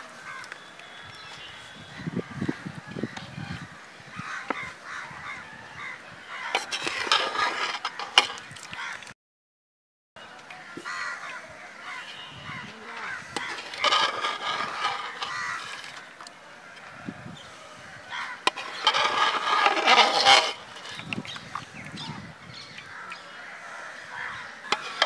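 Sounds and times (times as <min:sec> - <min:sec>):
bird calls: 0:00.0 - 0:09.1, 0:10.2 - 0:25.0
crows cawing: 0:00.2 - 0:00.5, 0:04.1 - 0:09.1, 0:10.6 - 0:21.0, 0:22.8 - 0:25.0.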